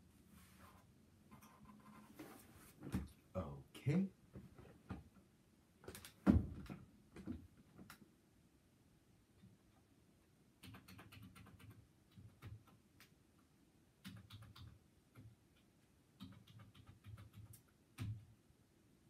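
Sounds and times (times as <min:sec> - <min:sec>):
faint irregular clicking and tapping: 0:04.3 - 0:08.2, 0:09.3 - 0:18.4.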